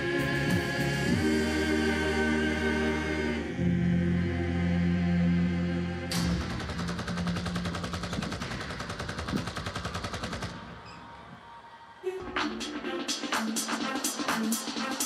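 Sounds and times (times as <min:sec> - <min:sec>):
electronic dance music: 0:00.0 - 0:02.9, 0:10.6 - 0:15.0
choir holding a chord: 0:00.0 - 0:06.6
machine-gun fire: 0:06.2 - 0:10.8.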